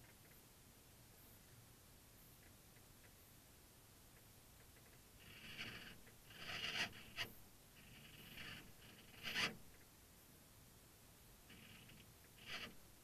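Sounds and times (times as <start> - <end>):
faint scratchy servo whirs: 4.8 - 9.8, 11.4 - 13.0.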